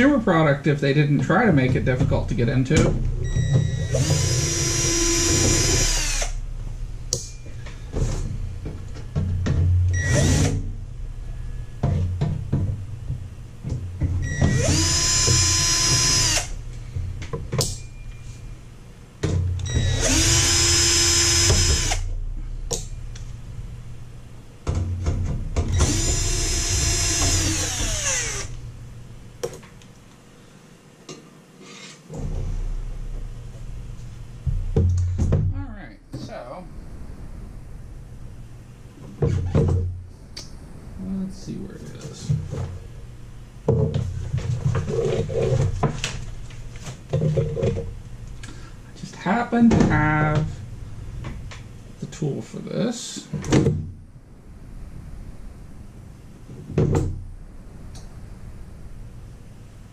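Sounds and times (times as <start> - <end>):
cordless drill motor whine: 3.2 - 6.4, 10.0 - 10.6, 14.2 - 16.6, 19.6 - 22.1, 25.7 - 28.6.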